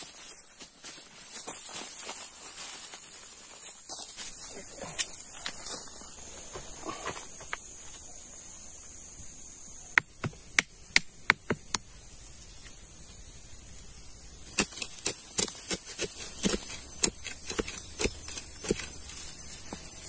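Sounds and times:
crickets droning: 0.0 - 20.0
stones and soil scraping: 14.4 - 20.0.

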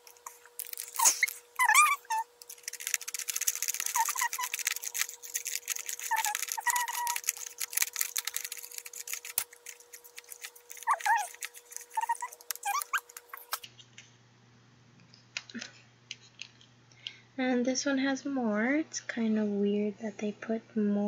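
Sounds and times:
powder packet crinkling: 0.0 - 13.7.

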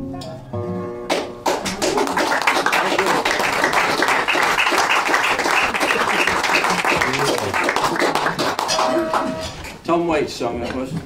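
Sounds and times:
audience applauding: 1.1 - 9.5.

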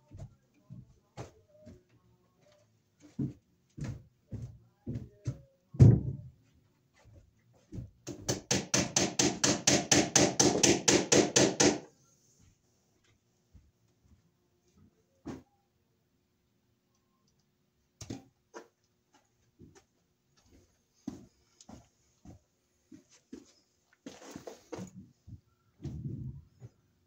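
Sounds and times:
hammer knocking staples into wood: 8.0 - 11.8.

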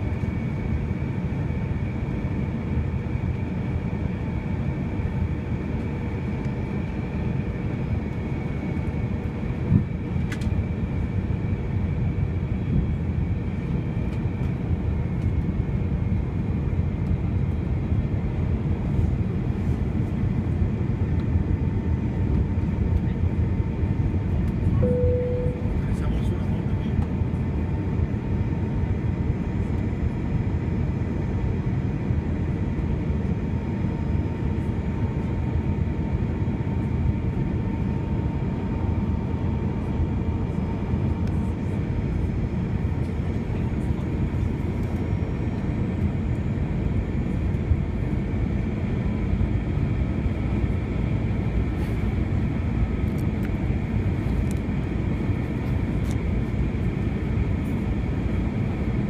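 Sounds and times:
aircraft cabin engine noise: 0.0 - 59.0
faint high engine tones: 24.8 - 26.4.

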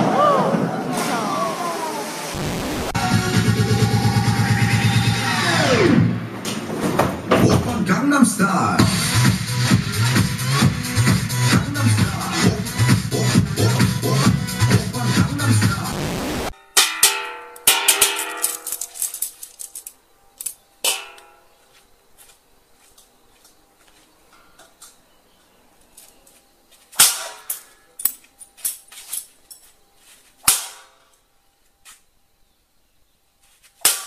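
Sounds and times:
sharp bangs and knocks: 20.8 - 21.4.

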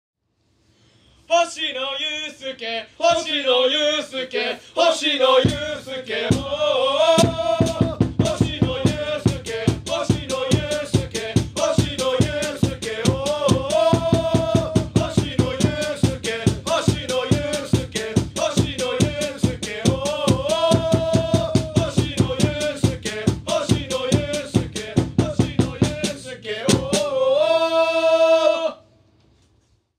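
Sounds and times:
football supporters chanting: 2.1 - 28.8
driving drum beat: 5.4 - 27.1.

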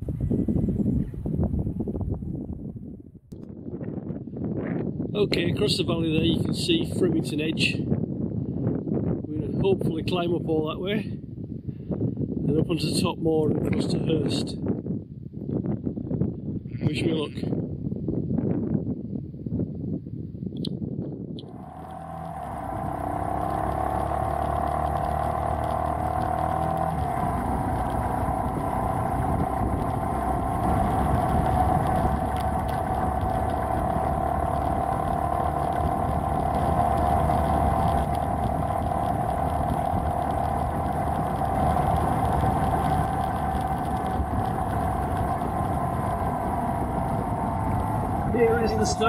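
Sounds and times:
motorcycle engine pulling away: 21.4 - 49.0.

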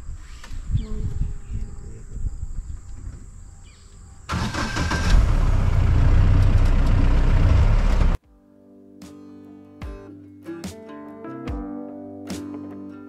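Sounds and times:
vehicle engine starting and running: 4.3 - 8.2.

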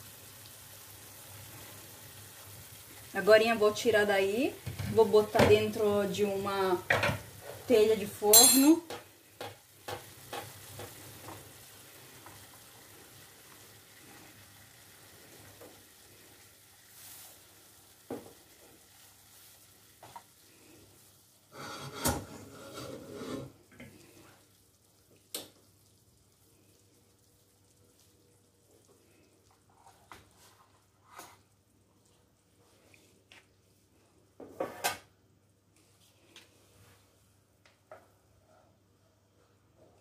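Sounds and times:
meat sizzling in a pan: 0.0 - 8.4, 9.0 - 22.0
pan and spatula clattering: 8.3 - 11.0.

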